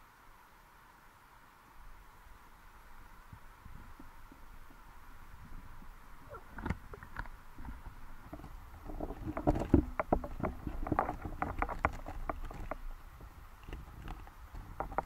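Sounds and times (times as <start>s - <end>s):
underwater rumble: 3.3s - 15.0s
underwater clicks and knocks: 6.5s - 15.0s.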